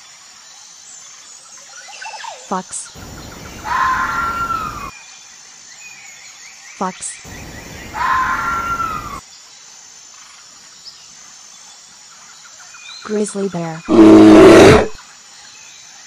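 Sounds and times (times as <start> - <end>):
fox cry: 13.9 - 15.0.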